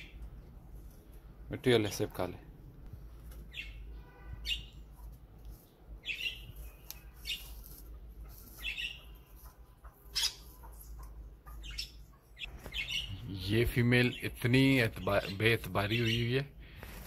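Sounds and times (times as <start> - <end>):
parakeets chirping: 3.4 - 4.9, 5.7 - 16.5.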